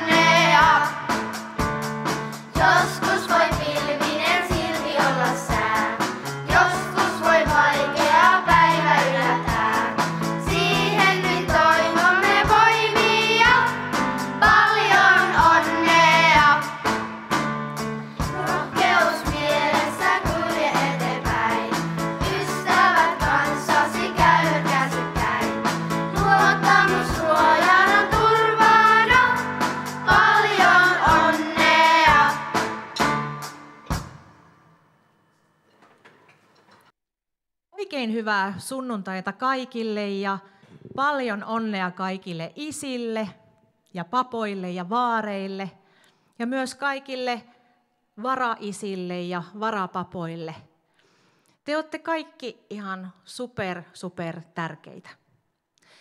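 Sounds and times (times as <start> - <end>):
children's choir singing: 0.0 - 1.2, 2.6 - 17.1, 18.3 - 33.2
instrumental accompaniment with beat: 0.0 - 34.7.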